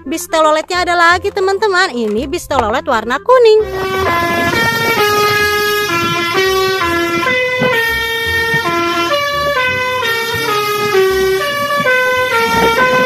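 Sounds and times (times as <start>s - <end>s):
bus horn playing a melody: 3.6s - 13.0s.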